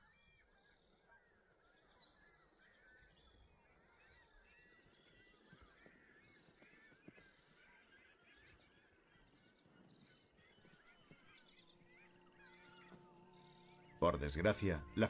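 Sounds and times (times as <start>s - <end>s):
chorus of short bird calls: 0.0s - 15.0s
faint steady hum: 8.7s - 15.0s.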